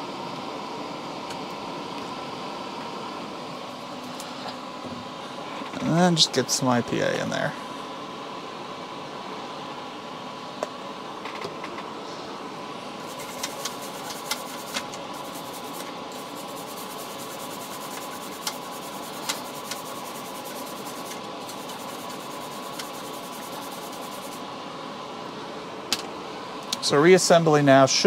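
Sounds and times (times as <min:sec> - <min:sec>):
fan hum: 0:00.0 - 0:28.0
toothbrush scrubbing circuit board: 0:13.1 - 0:24.4.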